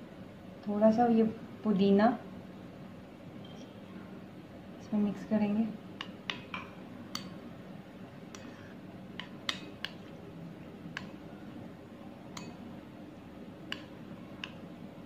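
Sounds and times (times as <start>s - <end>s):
faint steady hum: 0.0s - 15.0s
spoon clicking against bowl: 12.3s - 12.6s, 13.7s - 14.6s.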